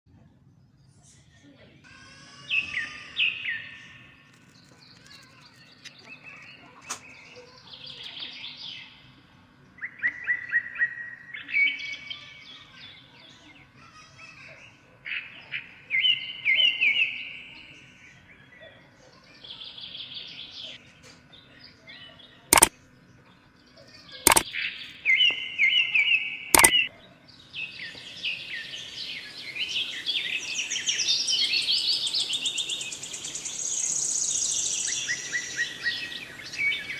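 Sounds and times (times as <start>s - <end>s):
songbirds chirping and singing: 2.2s - 13.9s, 14.5s - 36.9s
sharp clicks: 22.5s - 22.7s, 26.6s - 26.9s.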